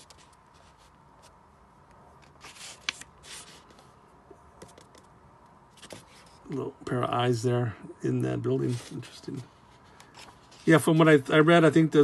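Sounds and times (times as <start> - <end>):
pages turning: 0.0 - 1.4, 2.2 - 3.9, 5.7 - 6.6, 8.6 - 11.0.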